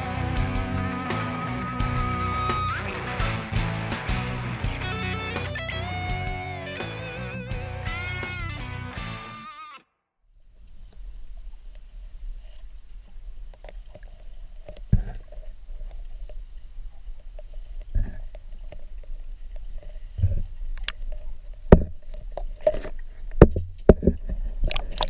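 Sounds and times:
muffled underwater water rumble: 0:10.4 - 0:25.0.

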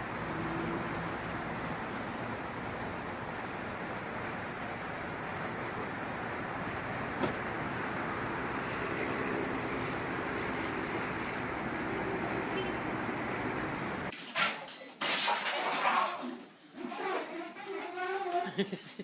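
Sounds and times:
traffic noise: 0:00.0 - 0:14.1.

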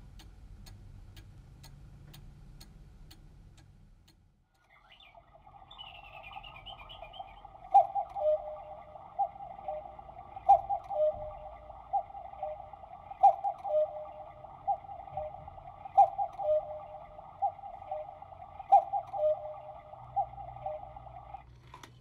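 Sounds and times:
clock click: 0:00.0 - 0:04.7
electronic clock notes: 0:01.1 - 0:21.5.

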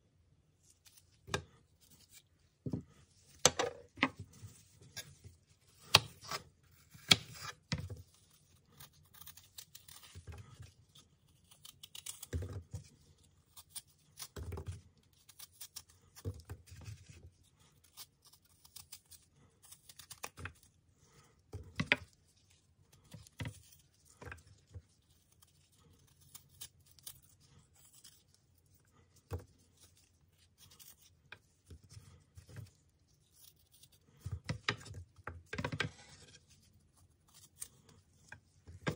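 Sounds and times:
knife cutting apple: 0:00.8 - 0:20.7.

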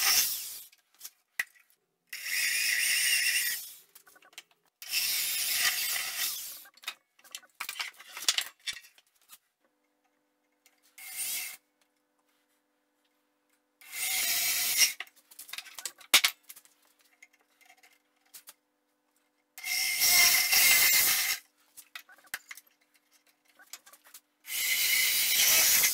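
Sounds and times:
drill boring into wood: 0:04.8 - 0:06.6, 0:13.9 - 0:15.0, 0:19.6 - 0:21.4, 0:24.5 - 0:25.9.

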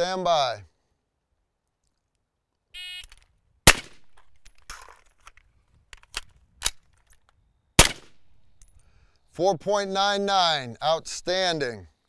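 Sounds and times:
magazine and bolt clacks: 0:03.0 - 0:08.9
rifle shot: 0:03.6 - 0:04.3, 0:07.8 - 0:08.5.

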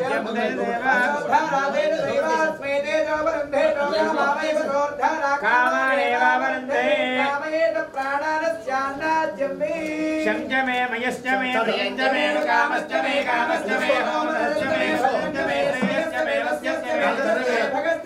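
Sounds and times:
unaccompanied singing voices: 0:00.0 - 0:18.0.

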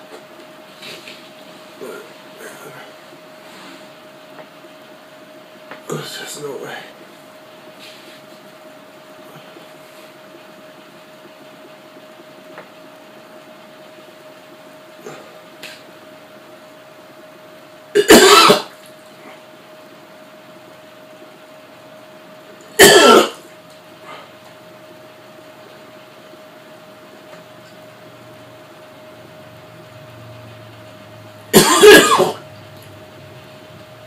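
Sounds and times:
man retching: 0:18.0 - 0:18.8, 0:22.8 - 0:23.4, 0:31.5 - 0:32.4.

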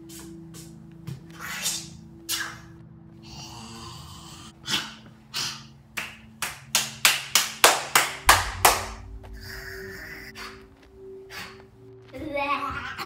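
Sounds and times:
low steady hum: 0:08.2 - 0:12.0.

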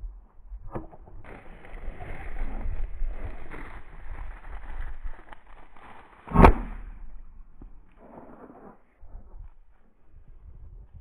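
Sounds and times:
rustling: 0:01.2 - 0:09.9
shotgun shot: 0:06.3 - 0:07.2.

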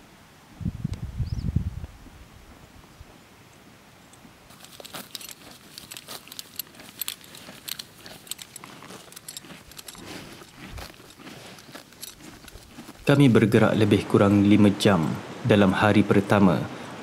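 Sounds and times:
horse chewing grass: 0:04.5 - 0:15.2.

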